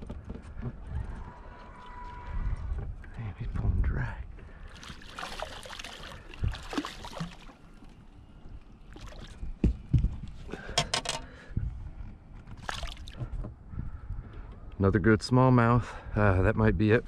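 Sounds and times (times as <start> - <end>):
water sloshing: 4.5 - 9.9, 12.6 - 13.3
fish thrashing and splashing: 4.7 - 8.0, 12.6 - 13.2.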